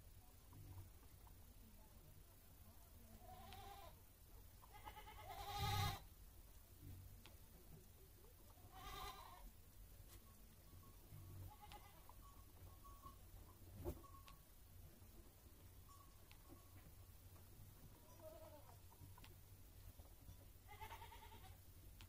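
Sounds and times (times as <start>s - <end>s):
goat bleating: 3.2s - 4.0s, 4.6s - 6.1s, 8.6s - 9.4s, 11.5s - 12.2s, 17.9s - 18.8s, 20.6s - 21.6s.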